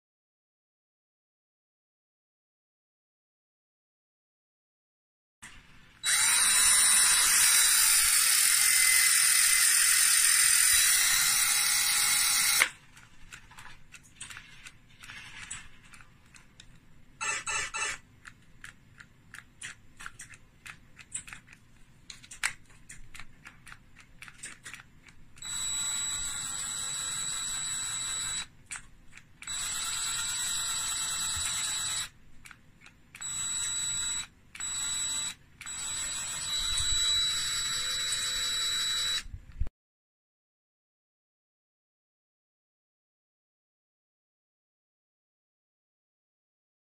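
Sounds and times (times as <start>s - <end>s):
cordless drill whining: 6.0s - 12.8s, 25.4s - 28.5s, 29.5s - 32.1s, 33.2s - 39.3s.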